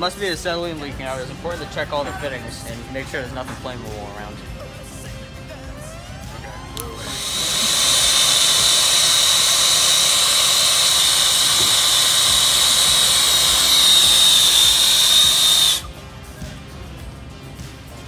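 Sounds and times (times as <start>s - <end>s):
torch flame hissing and whistling: 6.8s - 15.9s.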